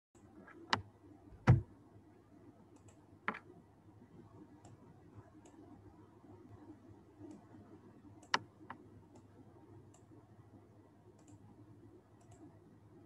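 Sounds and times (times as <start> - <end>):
computer mouse click: 2.7 - 3.5, 8.2 - 9.3, 9.9 - 10.1, 11.2 - 11.4, 12.2 - 12.5.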